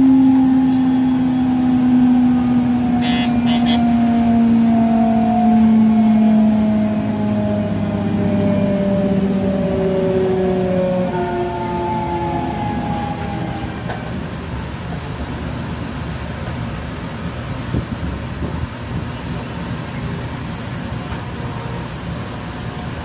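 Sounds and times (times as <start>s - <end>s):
electric train motor whine: 0.0s - 15.4s
train running rumble: 0.0s - 23.0s.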